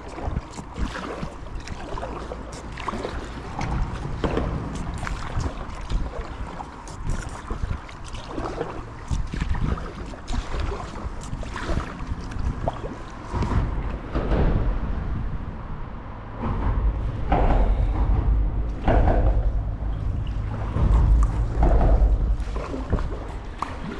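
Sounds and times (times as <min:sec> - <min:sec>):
water splashing and dripping: 0:00.0 - 0:15.4, 0:16.1 - 0:23.9
paddle dipping through water: 0:00.0 - 0:23.9
low rumble: 0:11.8 - 0:23.9.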